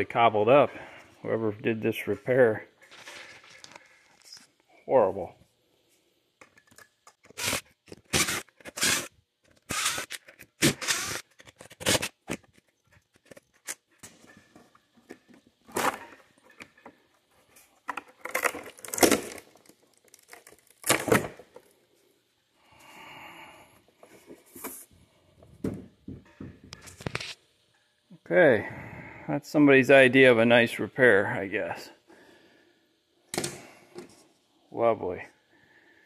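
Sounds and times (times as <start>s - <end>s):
sealant tearing and scraping: 7.2s - 14.0s, 18.2s - 21.2s.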